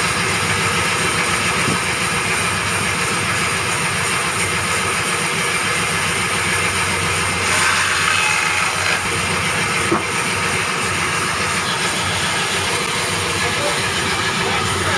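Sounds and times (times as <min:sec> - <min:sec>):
band saw cutting log: 0:00.0 - 0:14.9
band saw running: 0:00.0 - 0:14.9.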